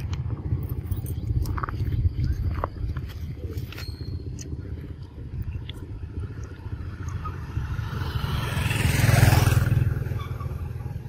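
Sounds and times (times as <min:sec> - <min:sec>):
vehicle driving past: 0:06.6 - 0:11.0.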